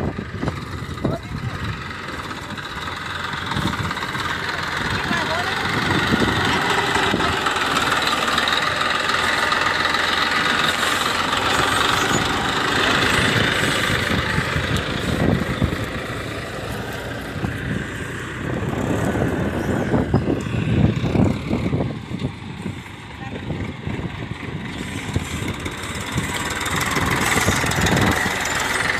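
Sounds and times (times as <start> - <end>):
tractor diesel engine under load: 0.0 - 28.9.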